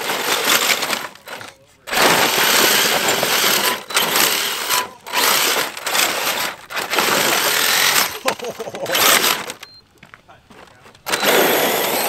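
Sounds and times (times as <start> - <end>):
electric motor whining: 0.0 - 9.6, 11.1 - 12.0
tyres spraying dirt and gravel: 0.0 - 9.6.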